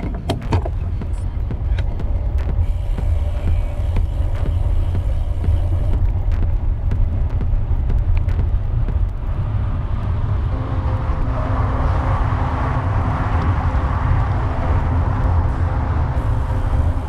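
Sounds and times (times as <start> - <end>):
road noise: 0.0 - 17.0
steady hum: 0.0 - 17.0
wind rumbling on microphone: 0.0 - 17.0
rushing sound: 0.7 - 17.0.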